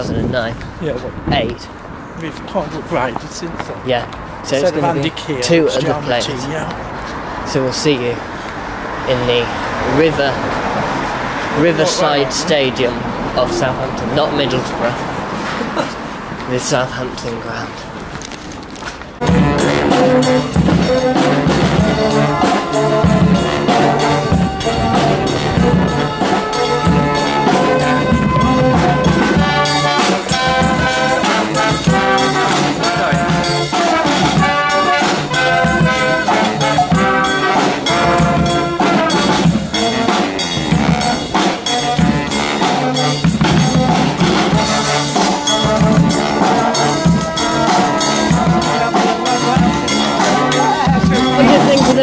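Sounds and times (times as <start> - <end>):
brass band playing: 4.5 - 6.6, 9.7 - 16.8, 19.2 - 52.0.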